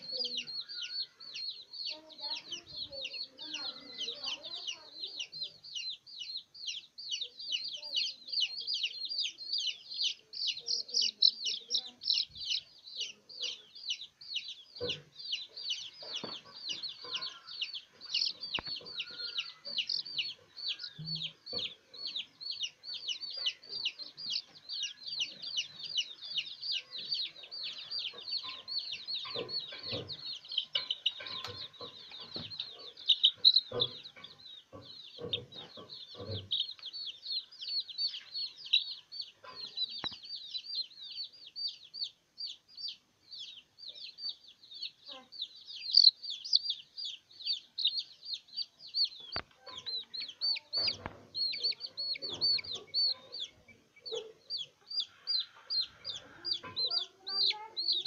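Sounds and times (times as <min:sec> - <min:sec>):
baby chicks peeping: 0:00.0 - 0:58.0.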